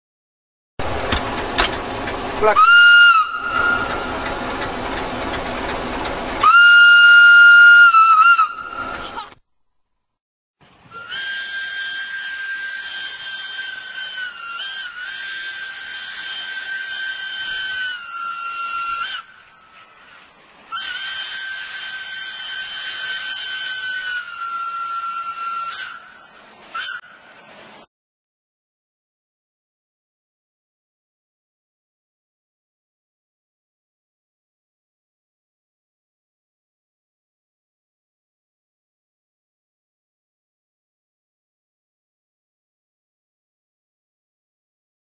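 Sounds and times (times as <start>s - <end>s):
locomotive air whistle blasts: 2.4s - 9.2s, 10.8s - 27.5s.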